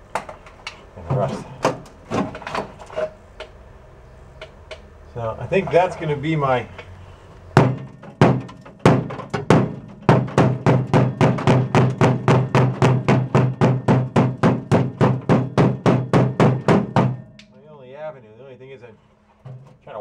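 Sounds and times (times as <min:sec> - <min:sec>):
fiberglass breaking: 0:07.6 - 0:17.6
hammer striking sheet steel: 0:07.6 - 0:18.1.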